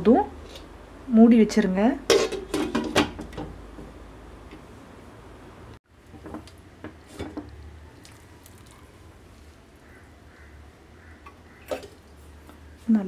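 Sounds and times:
glass lid clinking on metal pot: 0:02.1 - 0:03.0.

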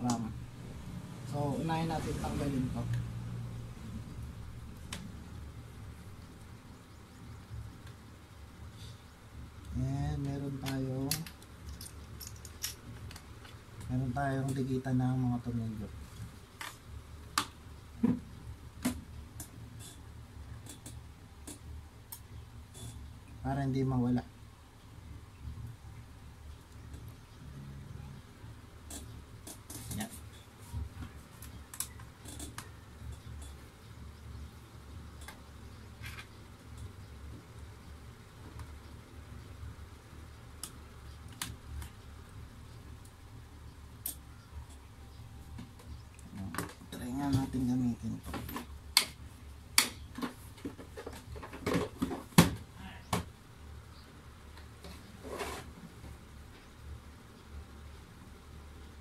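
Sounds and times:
low steady hum: 0:00.0 - 0:59.0
screwdriver and parts clicking on desk: 0:10.6 - 0:13.6.

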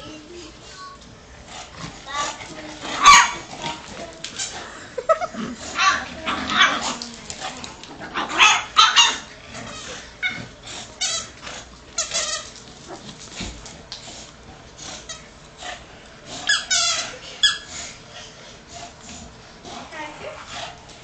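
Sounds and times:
squeaky dog toy squeaking: 0:16.5 - 0:17.7.

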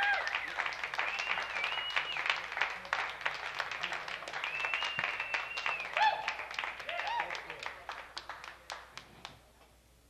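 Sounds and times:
crowd applauding: 0:00.0 - 0:09.1
high whistles: 0:00.2 - 0:02.3, 0:04.4 - 0:06.2.

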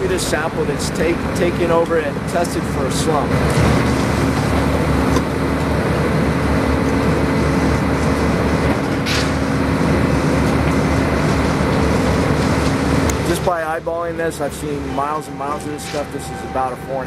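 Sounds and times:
heavy engine droning: 0:00.0 - 0:17.0.

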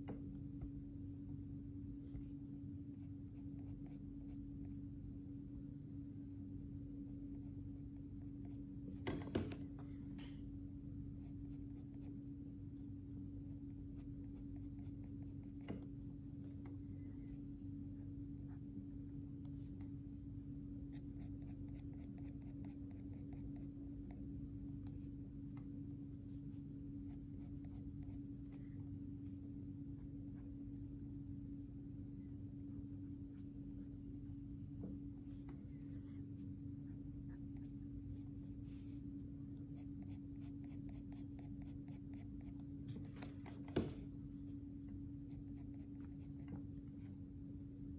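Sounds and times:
steady low hum: 0:00.0 - 0:47.9
pencil scratching on paper: 0:02.9 - 0:04.8, 0:07.3 - 0:09.5, 0:11.2 - 0:12.2, 0:13.4 - 0:17.4, 0:20.9 - 0:24.3, 0:26.2 - 0:30.5, 0:35.2 - 0:39.0, 0:39.8 - 0:42.6, 0:45.3 - 0:47.2.

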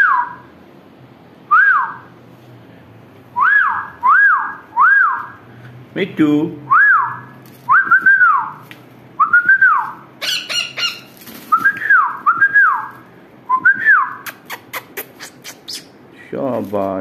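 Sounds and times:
parakeet whistling: 0:00.0 - 0:00.5, 0:01.5 - 0:02.1, 0:03.4 - 0:05.4, 0:09.2 - 0:16.0
parakeet squawk: 0:10.2 - 0:11.2.

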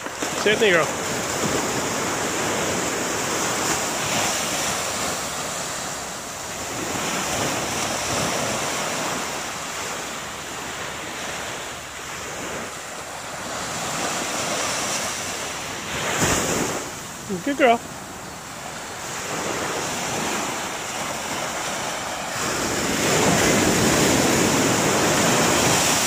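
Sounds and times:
waves washing on sandy shore: 0:00.0 - 0:26.0.

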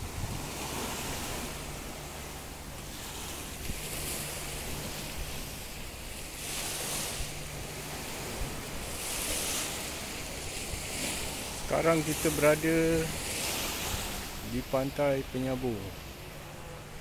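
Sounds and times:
wind buffeting microphone: 0:00.0 - 0:14.8
sea water lapping: 0:00.0 - 0:17.0.

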